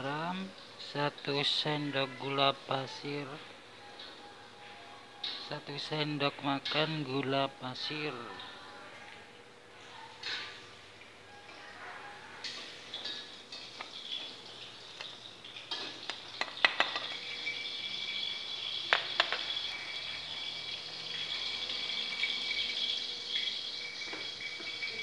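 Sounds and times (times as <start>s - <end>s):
kitchen utensils clinking: 10.1s - 10.7s, 12.4s - 25.0s
hot oil sizzling: 12.4s - 25.0s.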